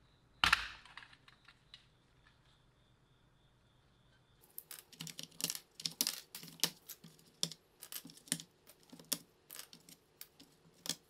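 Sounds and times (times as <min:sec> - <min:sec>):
keycaps clicking off keyboard: 0:04.6 - 0:11.0.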